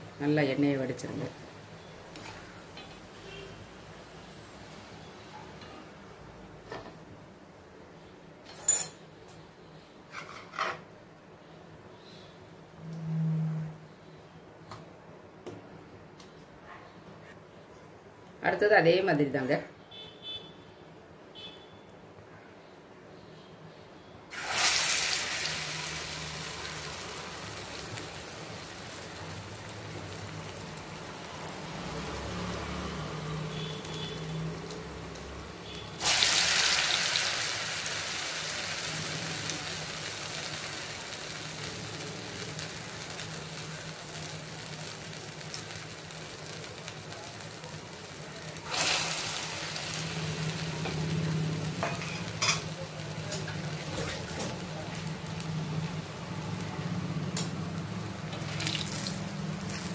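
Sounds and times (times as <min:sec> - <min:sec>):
batter sizzling in hot oil: 0:00.0 - 0:05.6, 0:24.3 - 0:59.9.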